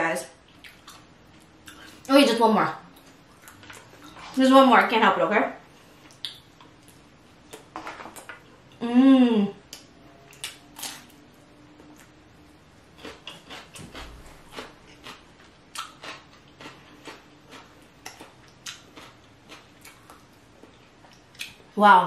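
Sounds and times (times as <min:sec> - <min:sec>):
crunchy chewing: 0:12.9 - 0:21.6.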